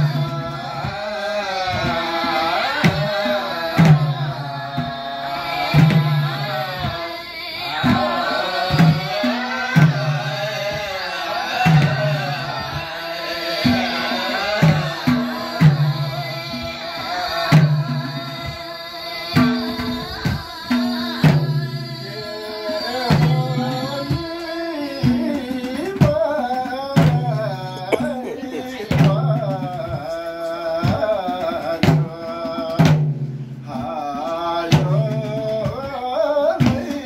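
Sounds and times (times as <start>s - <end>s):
women singing folk song: 0.0s - 33.0s
hand drum beating: 13.6s - 34.0s.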